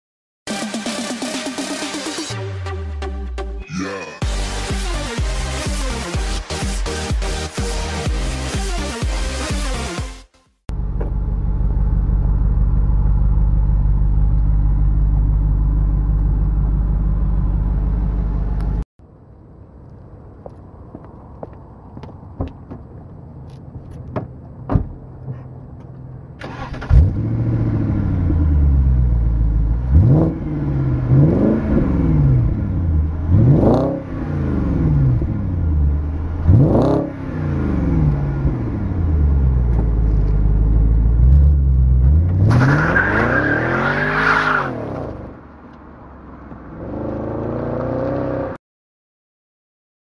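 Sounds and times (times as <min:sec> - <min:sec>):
car engine revving: 0:26.4 - 0:45.4, 0:46.4 - 0:48.6.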